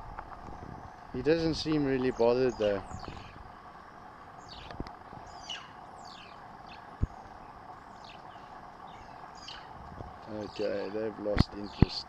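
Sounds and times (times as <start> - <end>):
faint steady hiss: 0.0 - 12.0
high animal chirps: 4.4 - 9.8.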